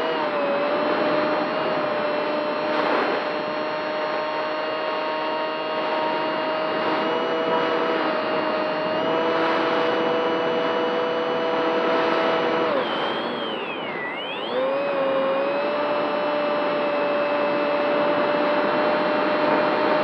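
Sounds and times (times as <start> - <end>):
model plane motor whining: 0.0 - 20.0.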